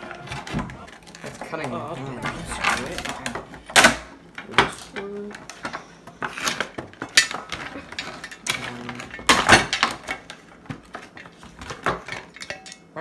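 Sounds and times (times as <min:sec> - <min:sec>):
metal shovel clicking and clattering: 0:12.1 - 0:12.9.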